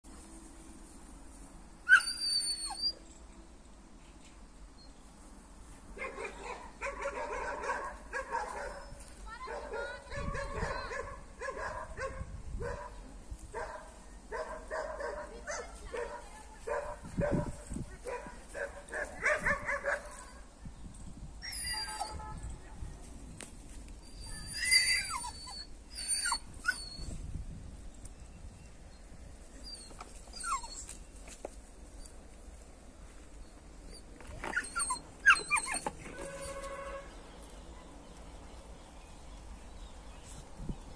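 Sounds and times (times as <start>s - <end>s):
dog yipping and whining: 1.9s - 3.2s, 21.4s - 22.2s, 24.0s - 27.2s, 29.6s - 31.1s, 33.9s - 36.7s.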